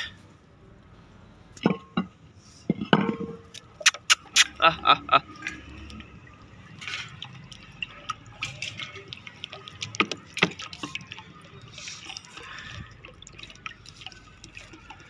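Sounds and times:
water drips: 3.5s - 15.0s
water pouring into metal bowl: 3.8s - 15.0s.

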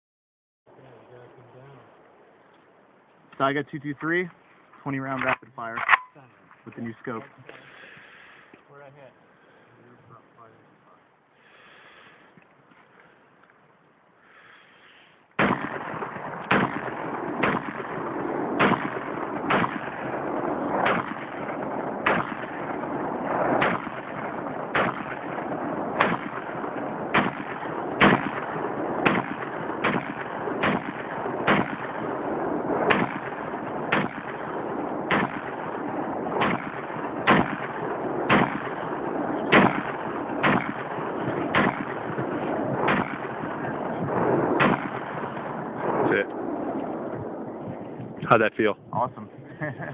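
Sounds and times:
rifle shots: 15.4s - 47.8s.

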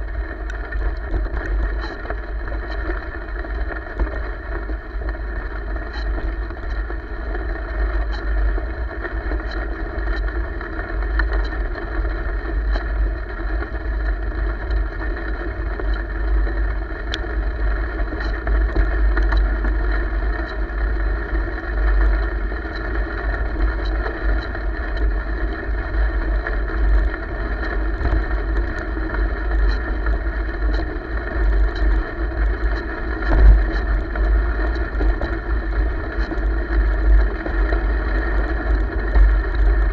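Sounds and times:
light ticks: 0.4s - 4.2s, 8.0s - 12.9s, 18.0s - 20.7s, 27.5s - 39.7s.

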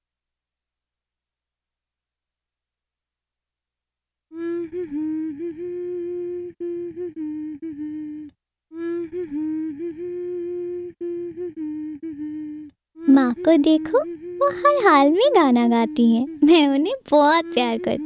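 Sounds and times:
woman humming: 4.3s - 18.0s.

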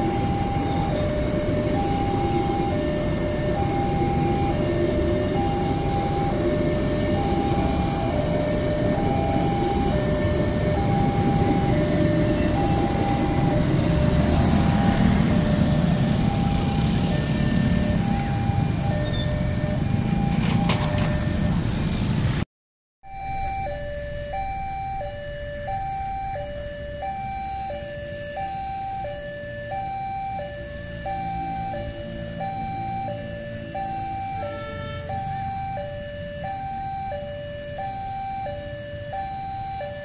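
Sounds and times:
two-tone crossing alarm: 0.0s - 22.2s, 23.0s - 40.0s
train coaches rumbling past: 0.0s - 22.4s.

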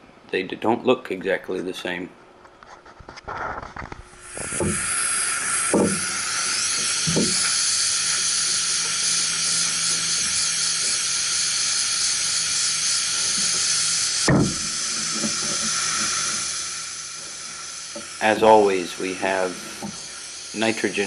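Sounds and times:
torch flame hissing: 3.3s - 21.0s
low thumps: 14.3s - 15.6s.

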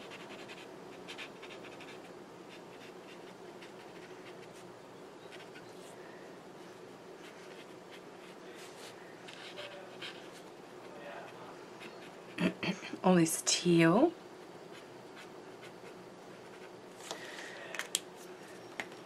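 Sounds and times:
brush marker scratching on paper: 0.0s - 4.6s, 7.2s - 10.5s
low room hum: 0.0s - 19.0s.

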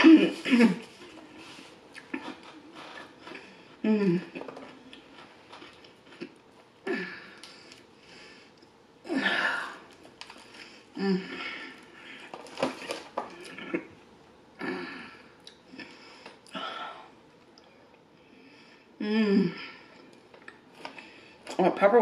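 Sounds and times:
person chewing bread: 0.9s - 8.8s.

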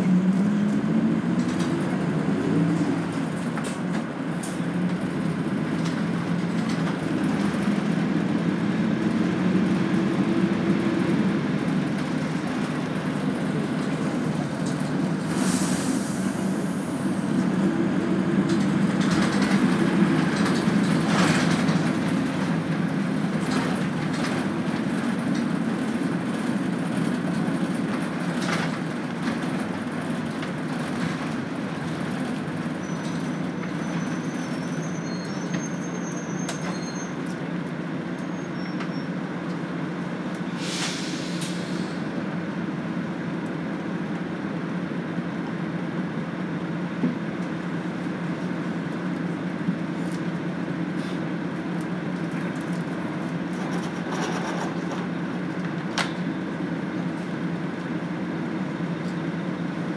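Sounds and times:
bus engine and road drone: 0.0s - 59.9s
short air hiss: 15.3s - 16.8s, 40.5s - 42.0s
rattles and clicks: 18.4s - 22.6s, 52.2s - 56.2s.

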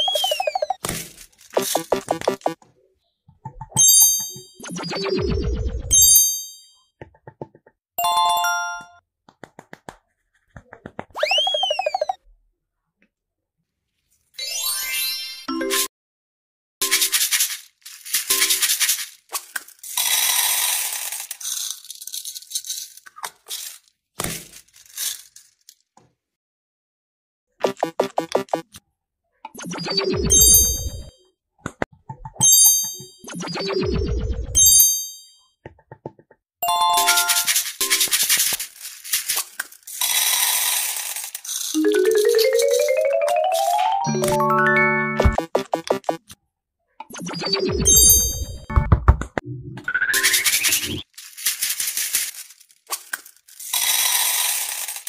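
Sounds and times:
cartoon blips and rattles: 0.0s - 0.8s, 1.5s - 2.6s, 3.4s - 6.2s, 10.7s - 12.2s, 27.6s - 28.8s, 29.5s - 31.1s, 32.0s - 34.8s, 35.7s - 38.4s, 41.7s - 46.3s, 47.0s - 51.1s
xylophone-like rising notes: 1.6s - 2.6s, 8.0s - 9.0s, 36.6s - 37.4s, 41.8s - 46.2s.

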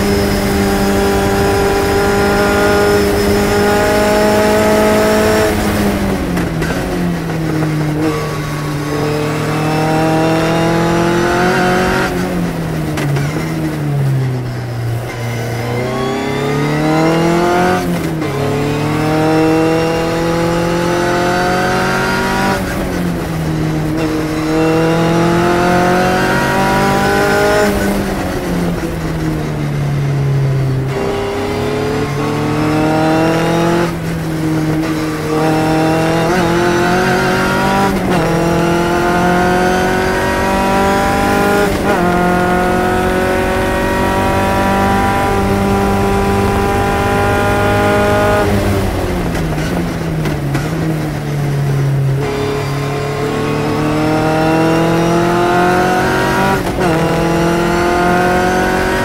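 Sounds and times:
racing car engine shifting gears: 0.0s - 59.0s.

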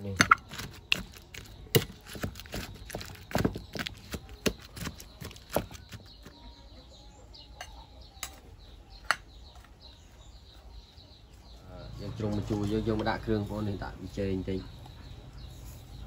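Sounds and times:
faint bird chirps: 0.0s - 16.0s.

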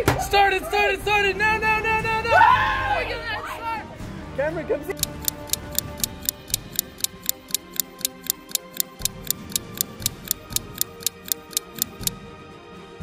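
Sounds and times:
clock ticking: 5.0s - 12.1s.

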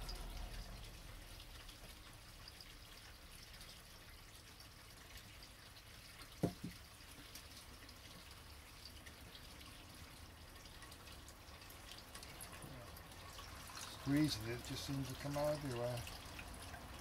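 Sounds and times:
water dripping into a cup: 0.0s - 17.0s
quick knocks: 6.4s - 6.8s.

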